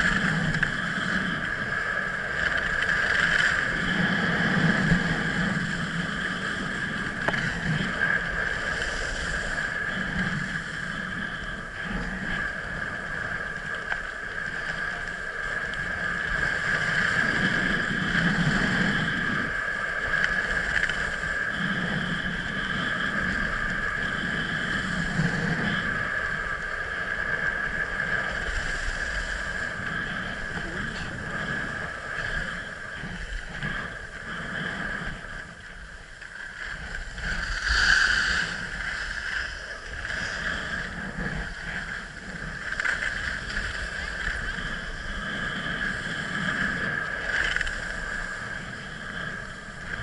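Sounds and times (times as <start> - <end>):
skis scraping over snow: 0.0 - 35.5.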